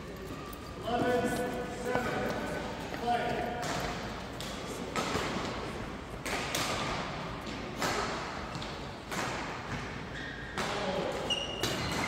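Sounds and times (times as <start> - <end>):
racket hitting shuttlecock: 3.6 - 5.6, 6.2 - 11.0.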